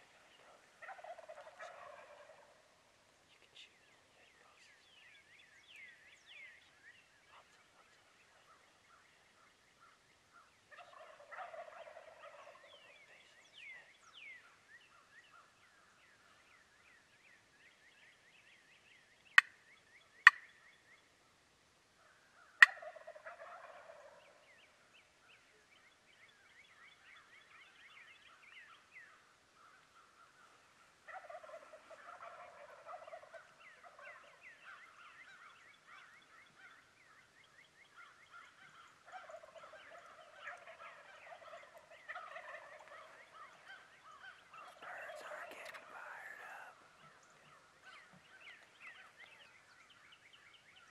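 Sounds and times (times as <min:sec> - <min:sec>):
turkey gobbling: 0:00.1 - 0:02.8, 0:10.7 - 0:13.0, 0:22.5 - 0:24.4, 0:31.0 - 0:36.8, 0:38.4 - 0:49.3.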